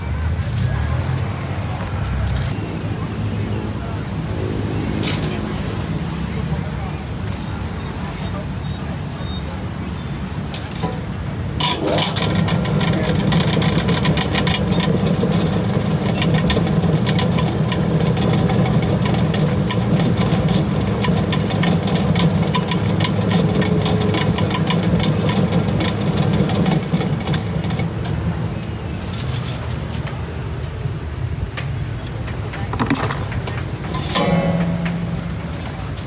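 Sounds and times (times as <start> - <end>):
fast clatter of clicks: 10.5 - 30.2.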